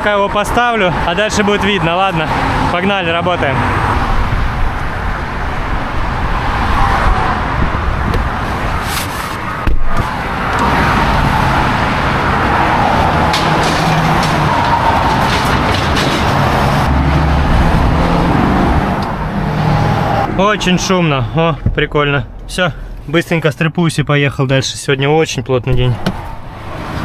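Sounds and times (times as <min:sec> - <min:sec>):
vehicle engine: 0:00.0 - 0:23.6, 0:25.7 - 0:27.0
busy road traffic: 0:00.0 - 0:27.0
loud bump: 0:09.4 - 0:11.0, 0:12.0 - 0:18.2.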